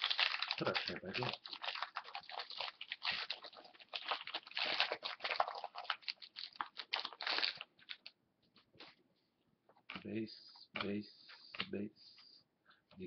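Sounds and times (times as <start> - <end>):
foil wrapper tearing and crinkling: 0.0 - 8.1.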